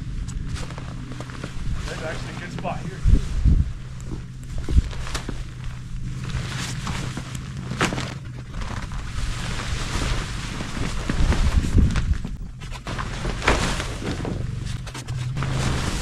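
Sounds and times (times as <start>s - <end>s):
wind buffeting microphone: 0.0s - 12.7s
tent fabric rustling and flapping: 0.0s - 16.0s.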